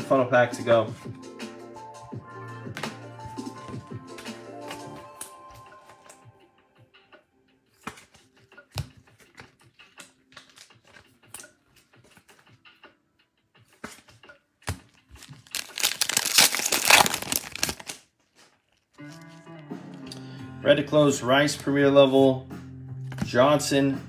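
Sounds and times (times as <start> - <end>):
foil wrapper tearing and crinkling: 15.2 - 19.3.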